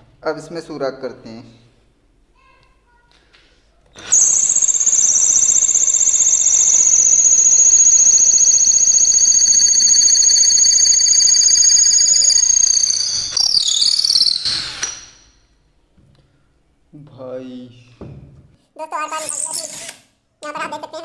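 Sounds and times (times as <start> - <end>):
cordless drill whining: 4.0 - 15.4.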